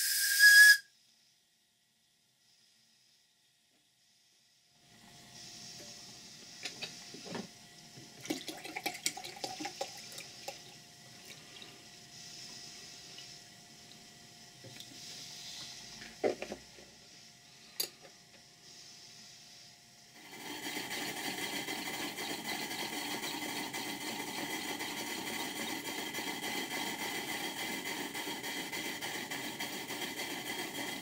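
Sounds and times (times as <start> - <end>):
water pouring into metal tank: 8.2 - 10.6.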